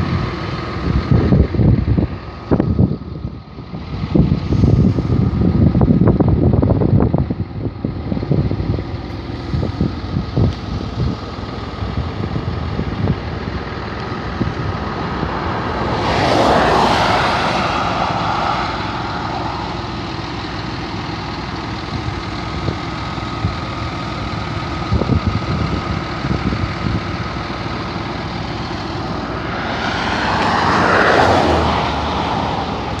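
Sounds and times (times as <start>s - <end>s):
steady outdoor hum: 0.0s - 33.0s
wind rumbling on microphone: 0.0s - 33.0s
motor vehicle passing: 14.2s - 20.9s, 28.0s - 33.0s.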